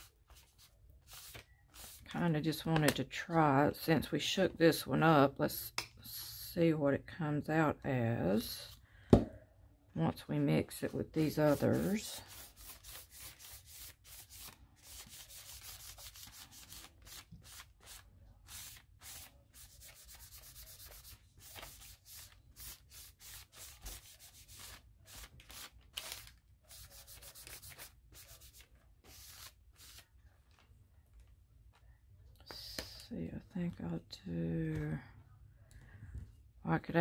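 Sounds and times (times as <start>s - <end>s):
paint brush rubbing on paper: 0.0s - 2.1s, 11.2s - 25.6s, 26.7s - 30.0s.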